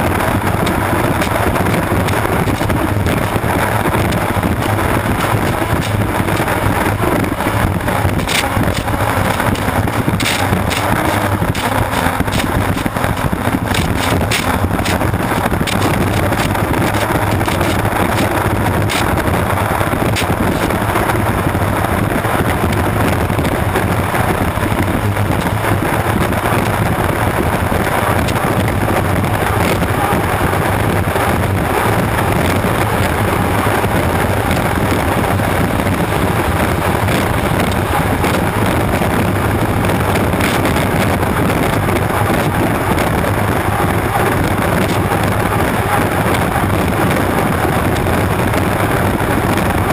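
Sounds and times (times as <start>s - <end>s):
short crackles: 0.0s - 21.1s, 22.4s - 49.9s
turbine engine and water rush: 0.0s - 49.9s
wind buffeting microphone: 0.0s - 49.9s.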